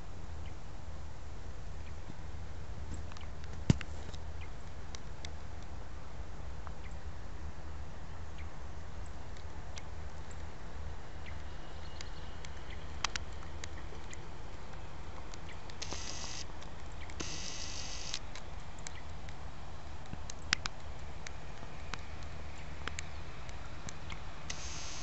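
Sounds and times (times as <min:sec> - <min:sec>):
handheld camera clicks: 0:15.4 - 0:19.0, 0:23.9 - 0:25.0
high buzzing bursts: 0:15.8 - 0:16.5, 0:17.2 - 0:18.2, 0:24.5 - 0:25.0.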